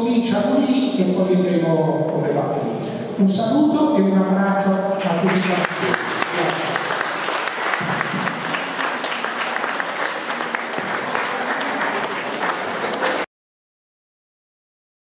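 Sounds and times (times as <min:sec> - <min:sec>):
audience applauding: 0:05.0 - 0:13.3.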